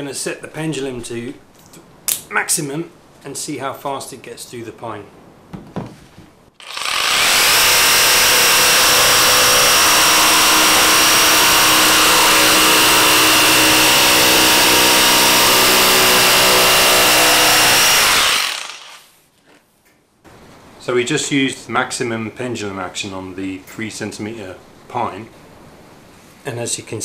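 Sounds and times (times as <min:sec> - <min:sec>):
jigsaw cutting wood: 0:06.6 - 0:19.1.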